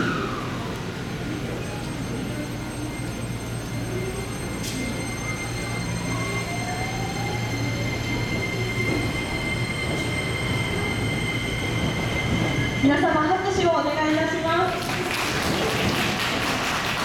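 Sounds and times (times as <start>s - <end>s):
electric train humming and whining: 0.0s - 17.0s.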